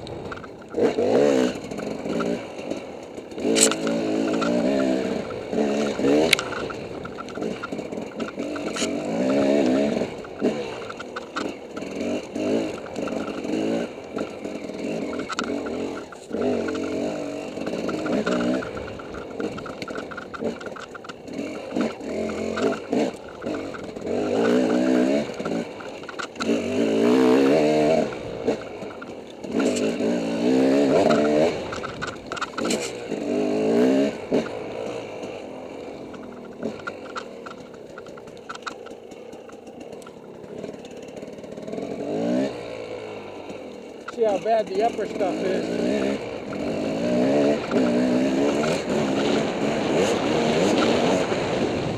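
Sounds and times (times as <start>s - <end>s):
dirt bike engine revving: 0.0s - 51.9s
knocks and rattles: 0.1s - 30.0s, 30.7s - 35.4s, 36.0s - 41.8s.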